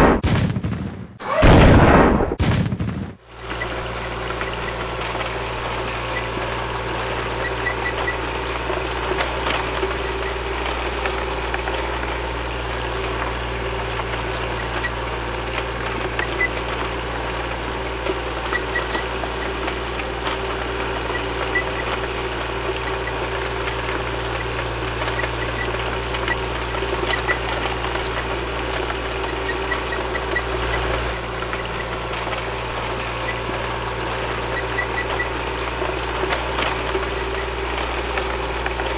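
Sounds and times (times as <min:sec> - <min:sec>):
tank engine rumble: 0:02.7 - 0:38.9.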